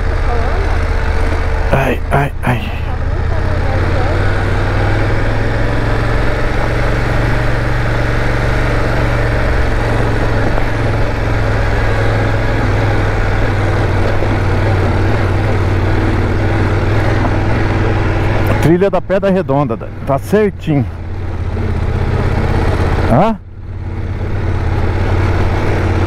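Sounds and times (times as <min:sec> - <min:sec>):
motorcycle engine pulling under load: 0:03.1 - 0:18.8.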